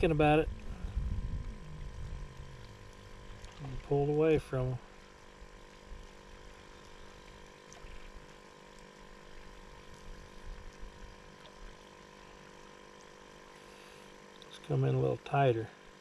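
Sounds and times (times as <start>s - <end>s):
low rumble: 0.0s - 7.1s
faint hum of held tones: 0.0s - 16.0s.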